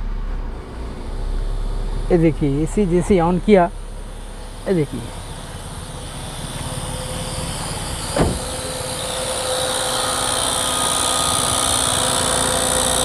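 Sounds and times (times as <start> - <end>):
car engine running: 0.0 - 13.0
thump: 8.1 - 8.6.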